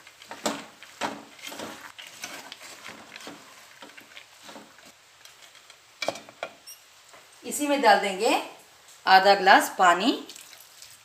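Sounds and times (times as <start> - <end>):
wooden spatula scraping metal pot: 0.0 - 5.8.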